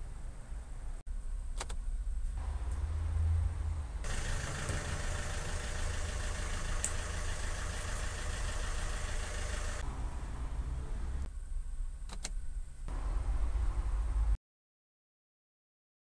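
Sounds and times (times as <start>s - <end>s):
diesel engine idling: 3.8s - 9.9s.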